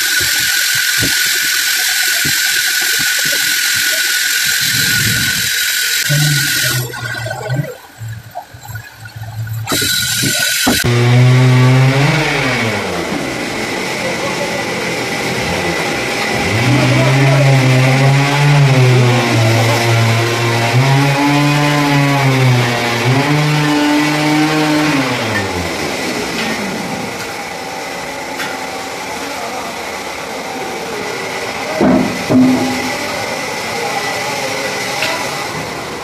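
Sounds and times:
machine motor running: 0:00.0 - 0:35.8
metallic knocks: 0:31.8 - 0:33.1.

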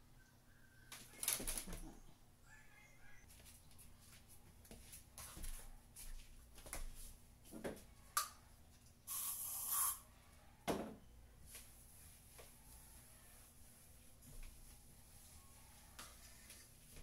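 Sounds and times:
spray bottle hissing: 0:09.1 - 0:10.0
soft rubbing: 0:11.4 - 0:17.0.

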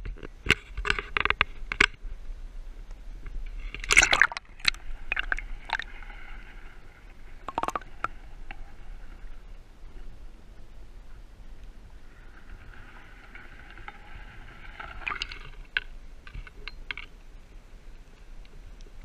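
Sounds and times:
sharp underwater clicks: 0:03.2 - 0:06.0, 0:07.4 - 0:08.6
underwater gurgling and hiss: 0:03.5 - 0:15.7.

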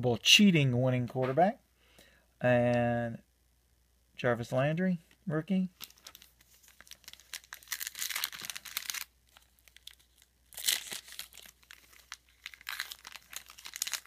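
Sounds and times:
foil wrapper tearing and crinkling: 0:05.8 - 0:14.0.

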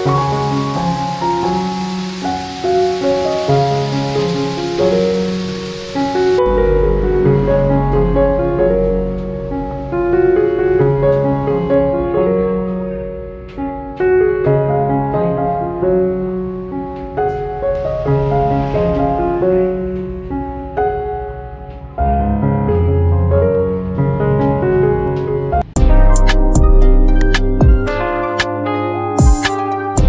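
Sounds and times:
frying pan sizzle: 0:00.0 - 0:06.4
piano music: 0:00.0 - 0:30.0.

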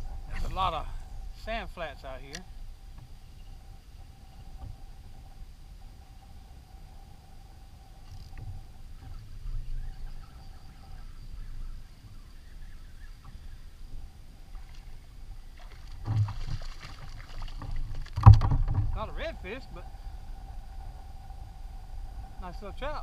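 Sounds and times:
low rumble of water: 0:00.0 - 0:23.0
fish splashing at surface: 0:15.6 - 0:18.7.

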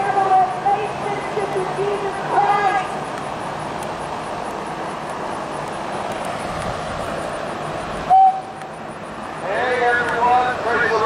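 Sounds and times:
steady background hiss: 0:00.0 - 0:11.0
single tone: 0:08.1 - 0:08.7.

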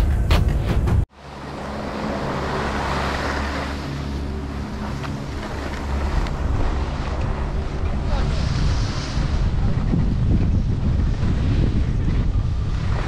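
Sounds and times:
wind rushing over microphone: 0:00.0 - 0:13.0
skis scraping over packed snow: 0:08.1 - 0:13.0.

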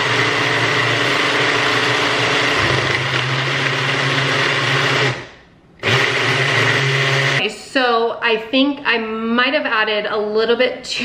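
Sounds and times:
blender motor whining: 0:00.0 - 0:07.4.

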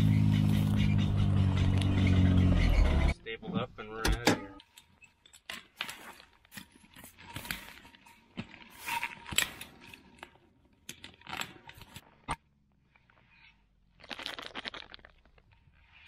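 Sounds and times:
wire scraping against metal post: 0:04.2 - 0:12.4.

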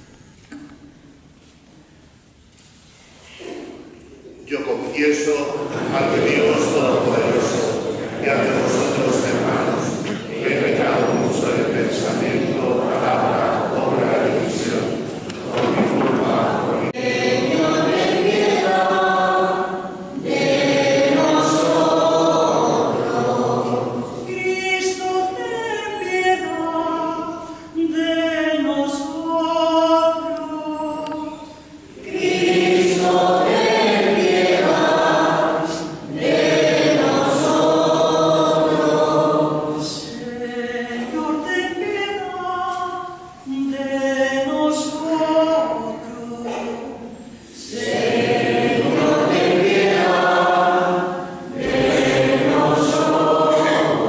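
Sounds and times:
choir singing: 0:05.2 - 0:25.5, 0:31.9 - 0:41.9, 0:45.6 - 0:54.0.

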